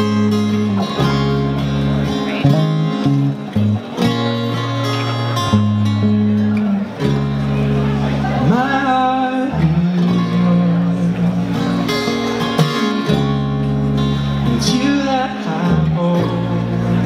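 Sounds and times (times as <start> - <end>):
acoustic band music: 0.0 - 17.0
person singing: 8.2 - 11.8, 14.3 - 17.0.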